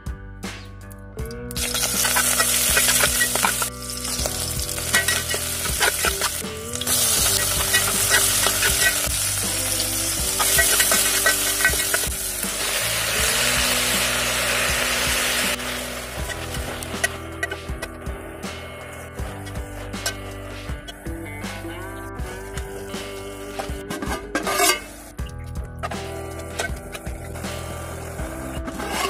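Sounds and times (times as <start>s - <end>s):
onions sizzling in hot oil: 1.6s - 17.5s
spatula scraping metal pot: 1.7s - 12.4s, 23.9s - 25.0s, 28.7s - 29.0s.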